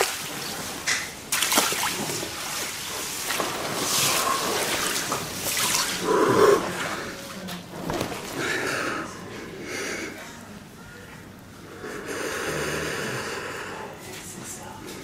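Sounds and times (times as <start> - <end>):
ice water sloshing and splashing: 0.0 - 6.0.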